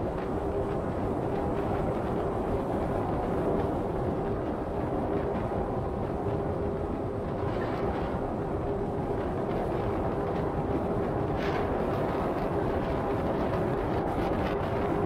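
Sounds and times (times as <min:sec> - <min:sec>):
faint constant hum: 0:00.0 - 0:15.0.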